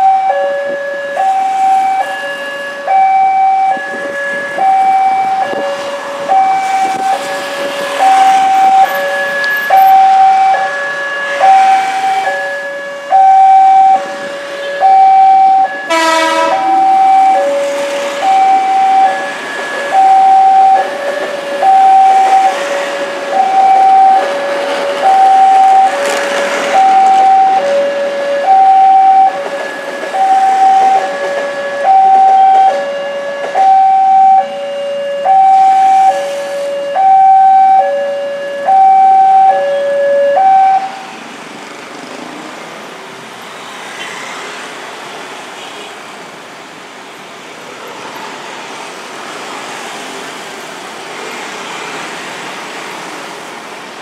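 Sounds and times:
two-tone level crossing alarm: 0:00.0 - 0:41.2
road traffic hum: 0:00.0 - 0:54.0.

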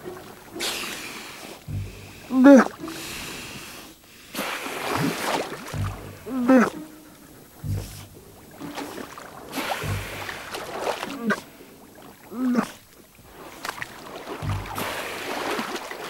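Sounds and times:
seals calling: 0:00.0 - 0:13.7, 0:14.3 - 0:15.8
breathy exhalations: 0:00.6 - 0:08.3, 0:09.5 - 0:12.9
low thumps: 0:01.6 - 0:03.0, 0:05.7 - 0:11.4, 0:13.2 - 0:15.2.

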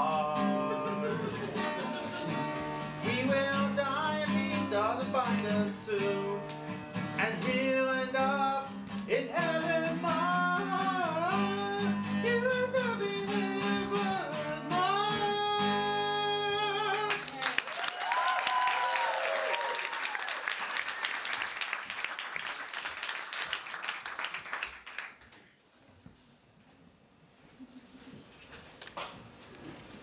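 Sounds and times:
strummed acoustic guitar: 0:00.0 - 0:17.0
man singing: 0:00.0 - 0:17.2
audience clapping: 0:16.8 - 0:25.5
person whooping: 0:17.7 - 0:20.4.

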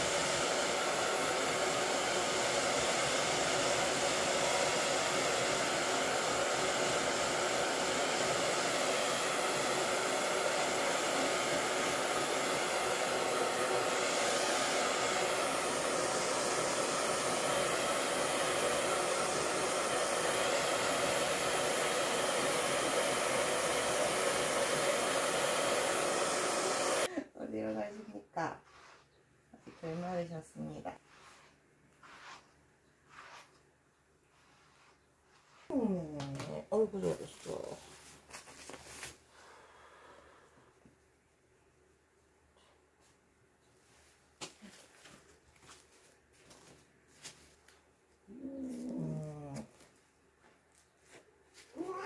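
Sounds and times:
hair dryer running: 0:00.0 - 0:27.1.

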